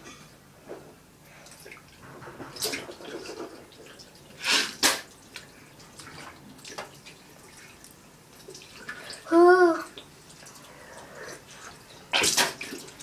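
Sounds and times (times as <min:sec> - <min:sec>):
water rinsing splashes: 0:01.6 - 0:13.0
person spitting into sink: 0:04.4 - 0:05.1.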